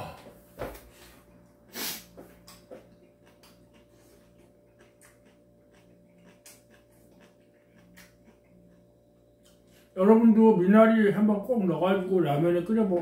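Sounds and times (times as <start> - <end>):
chewing and mouth clicks: 2.3 - 10.0.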